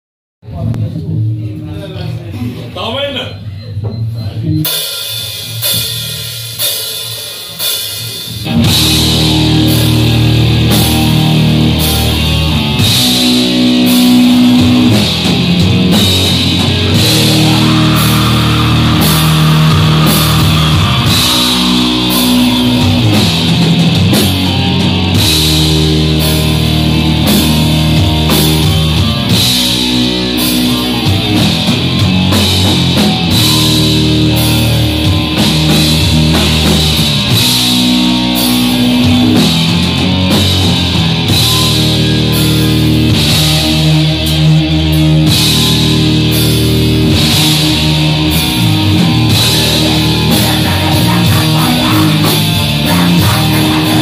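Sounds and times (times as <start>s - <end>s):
metal band playing live: 3.8s - 54.0s
held guitar chord ringing: 8.5s - 32.3s.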